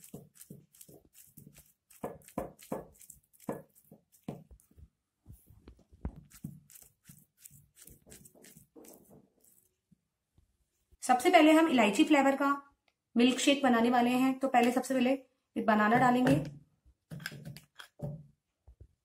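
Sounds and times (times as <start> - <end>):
knife slicing banana: 0.0 - 4.6.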